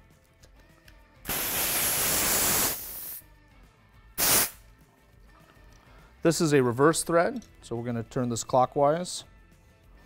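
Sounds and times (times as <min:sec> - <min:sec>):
compressed air hissing: 0:01.3 - 0:03.2, 0:04.2 - 0:04.6.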